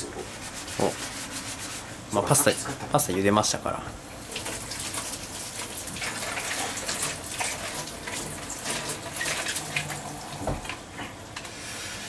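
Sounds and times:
tap running into a sink: 8.2s - 10.8s.

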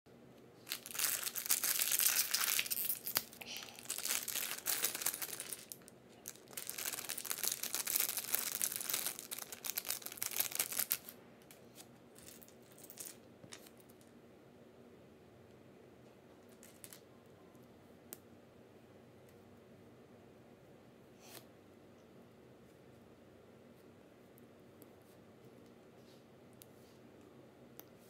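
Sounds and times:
plastic bag crinkling: 0.6s - 11.1s.

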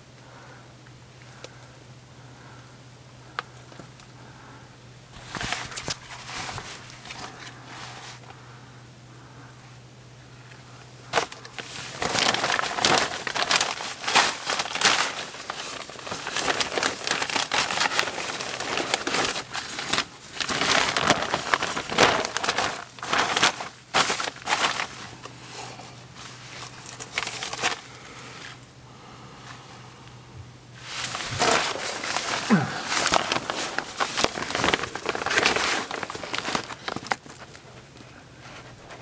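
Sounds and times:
faint low hum: 0.0s - 39.0s
crinkling and scraping of crawling: 5.2s - 8.4s, 11.1s - 28.6s, 30.8s - 39.0s.

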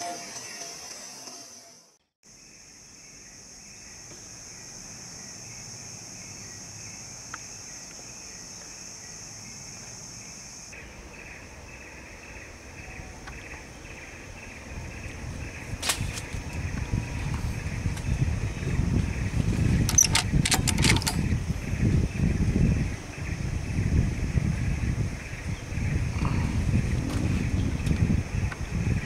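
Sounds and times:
high-pitched insect drone: 0.0s - 12.9s
pulsing insect chirr: 0.0s - 29.0s.

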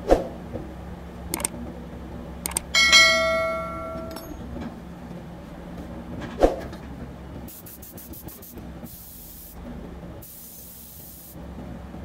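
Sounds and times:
sharp clicks: 1.3s - 1.6s, 2.4s - 2.7s
notification bell ding: 2.8s - 4.4s.

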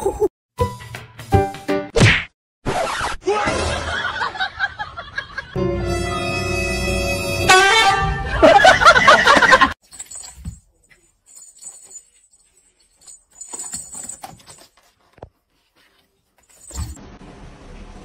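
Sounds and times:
light jingle: 9.8s - 14.8s, 16.4s - 17.0s.

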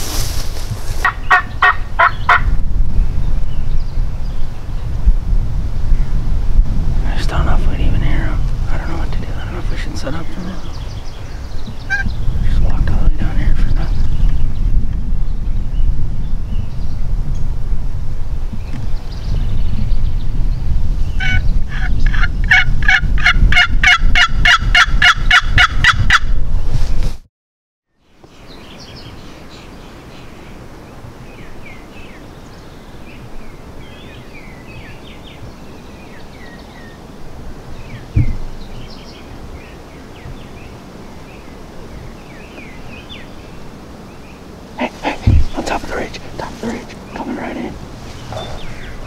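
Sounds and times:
songbirds chirping: 0.0s - 5.1s, 7.0s - 17.5s, 27.9s - 49.0s
thump: 38.2s - 38.4s.

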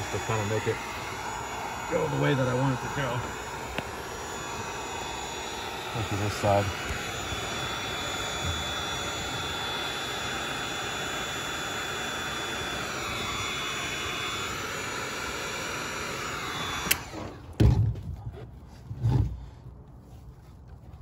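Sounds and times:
heat gun blowing air: 0.0s - 17.4s
heat gun switch click: 3.2s - 4.0s, 16.7s - 17.1s.

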